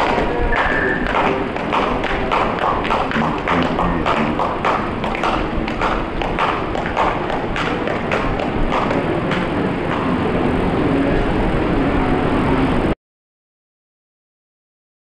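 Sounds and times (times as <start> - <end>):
fast thumps or taps: 0.0 - 10.0
rumbling outdoor noise: 0.0 - 13.0.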